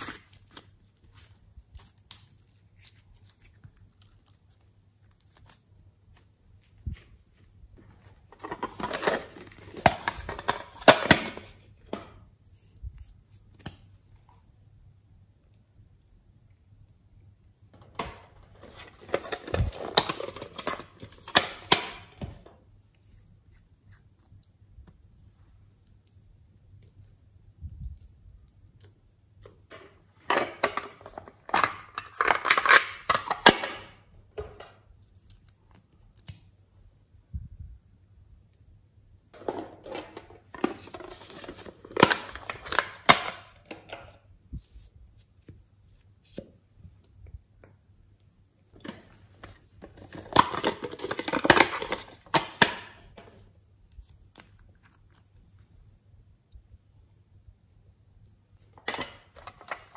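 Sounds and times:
plastic containers crackling and rattling: 0:07.8 - 0:12.1, 0:17.8 - 0:22.5, 0:29.7 - 0:34.8, 0:39.4 - 0:44.2, 0:48.8 - 0:53.4, 0:58.8 - 0:59.9.

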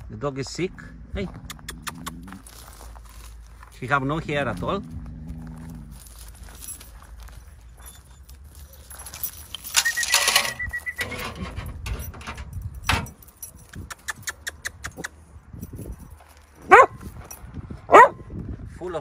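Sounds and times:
metal chain jangling: 0:05.7 - 0:17.6
dog yelping: 0:17.9 - 0:18.2.

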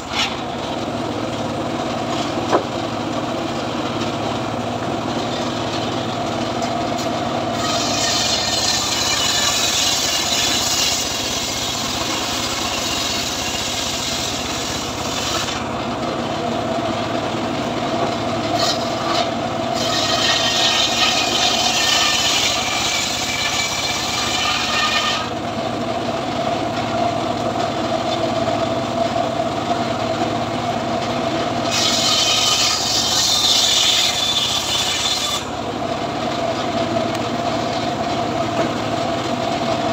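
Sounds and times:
saw blade humming: 0:00.0 - 0:25.8, 0:31.2 - 0:38.8
saw rasping into wood: 0:07.5 - 0:15.7, 0:18.5 - 0:25.4, 0:31.6 - 0:35.5.

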